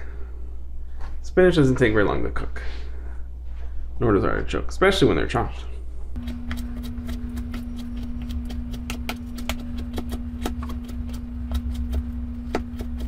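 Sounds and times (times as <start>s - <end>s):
steady low hum: 0.0s - 13.0s
knife chopping on cutting board: 6.2s - 13.0s.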